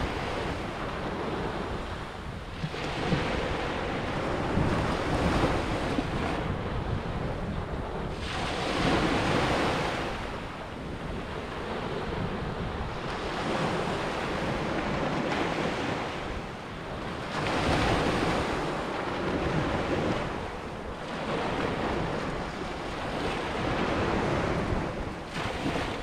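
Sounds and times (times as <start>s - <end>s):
sea waves breaking on beach: 0.0s - 26.0s.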